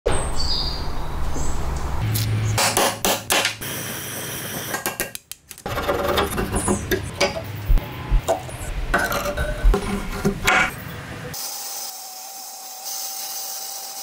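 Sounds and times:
rusty metal parts clinking: 8.3 - 10.7.

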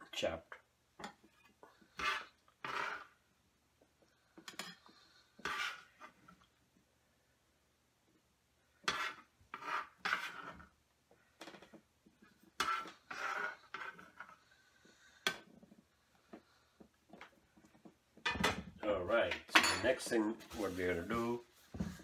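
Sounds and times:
scraper scraping on cutting board: 1.8 - 3.2, 5.4 - 6.2, 8.8 - 10.6, 12.6 - 14.4.

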